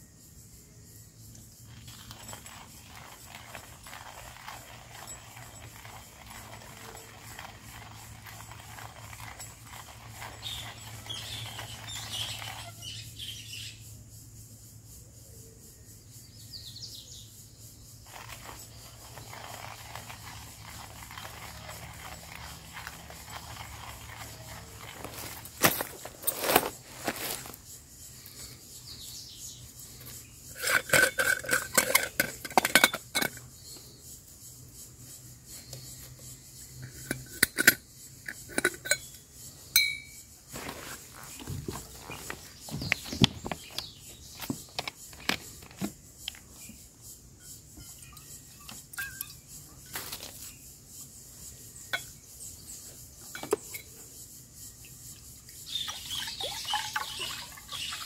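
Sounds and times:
metal cookware clinking: 30.6 - 33.4, 39.8 - 40.2.

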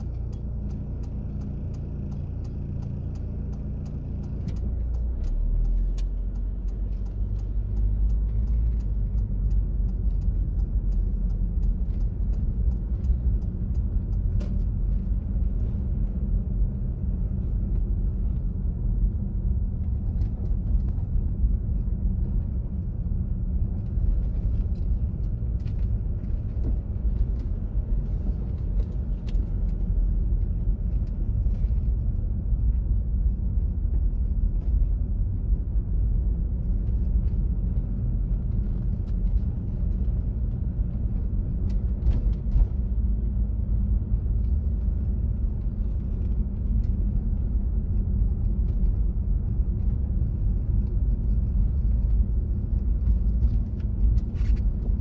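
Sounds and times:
light ticks: 0.0 - 43.0
car engine and road rumble: 0.0 - 55.0.

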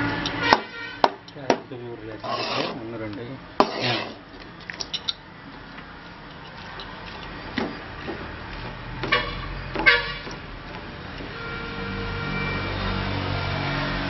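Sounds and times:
ladle stirring and scraping rice: 2.2 - 2.9, 3.6 - 4.2.

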